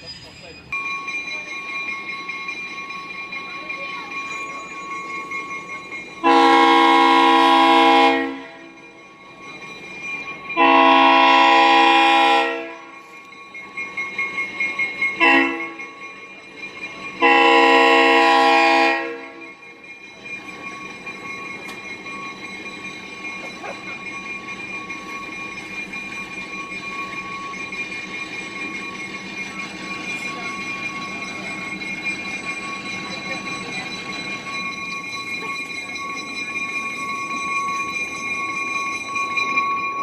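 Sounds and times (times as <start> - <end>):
locomotive rumble: 0.0 - 40.0
locomotive air horn blasts: 6.2 - 8.6, 10.6 - 12.8, 15.2 - 15.8, 17.2 - 19.4.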